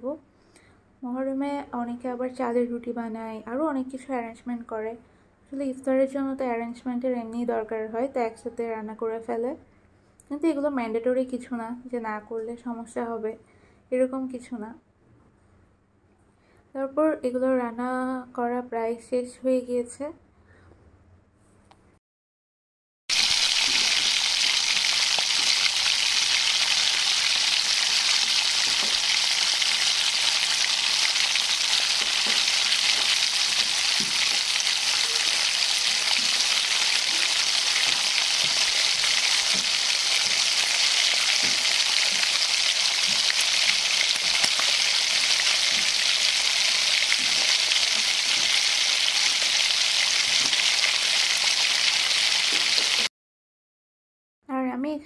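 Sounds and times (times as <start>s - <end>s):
rice sizzling in a pot: 23.1s - 53.1s.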